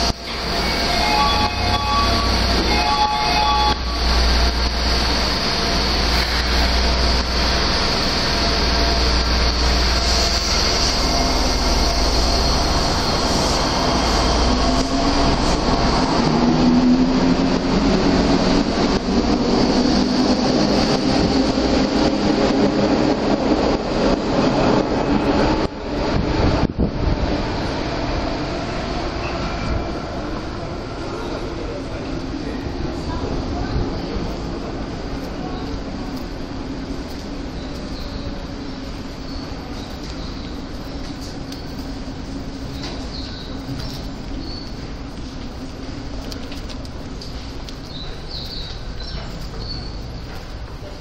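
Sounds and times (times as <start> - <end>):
train motor whine: 0.0 - 15.8
subway train low rumble: 0.0 - 51.0.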